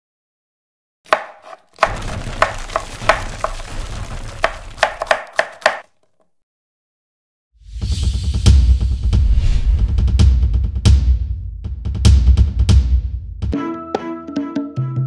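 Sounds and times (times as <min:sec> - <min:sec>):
wood chopping knocks: 0:01.1 - 0:05.9
low rumble: 0:07.8 - 0:11.8.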